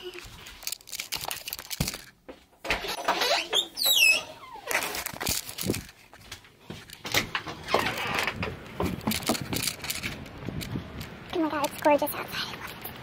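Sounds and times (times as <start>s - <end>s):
door squeaking: 2.7s - 5.0s, 7.6s - 8.6s
door knocks and clunks: 7.1s - 9.6s.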